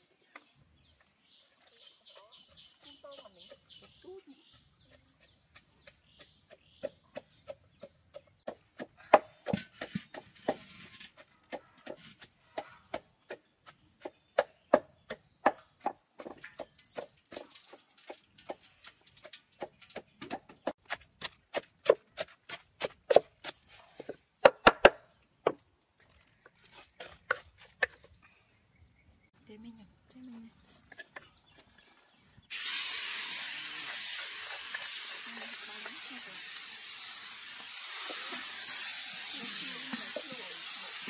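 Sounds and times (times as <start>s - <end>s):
pestle pounding in wooden mortar: 2.1s - 18.6s, 19.2s - 25.6s.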